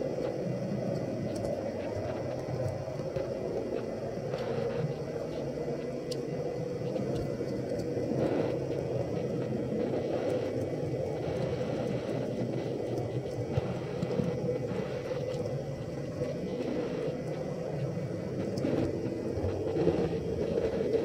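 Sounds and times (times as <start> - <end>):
faint clicks: 0.2 - 21.0.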